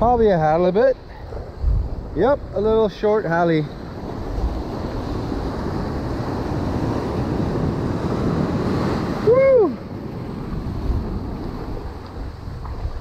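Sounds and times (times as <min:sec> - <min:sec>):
surf washing over sand and rocks: 0:00.0 - 0:13.0
wind on microphone: 0:00.0 - 0:13.0.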